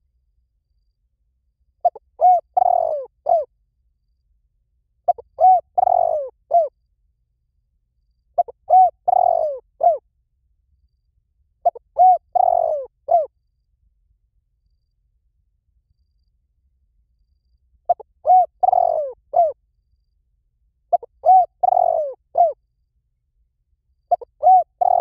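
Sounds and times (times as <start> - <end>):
dove cooing: 1.8 - 3.5, 5.1 - 6.7, 8.4 - 10.0, 11.6 - 13.3, 17.9 - 19.6, 20.9 - 22.6, 24.1 - 25.0.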